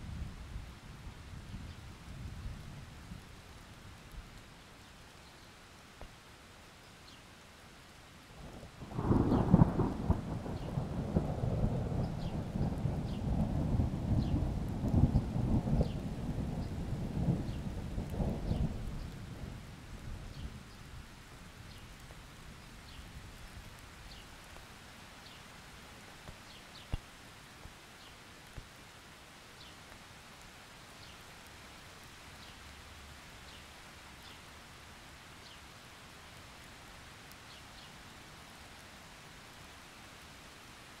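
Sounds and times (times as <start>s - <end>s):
rain falling on a puddle: 0.0s - 41.0s
thunder rumble: 8.6s - 19.7s.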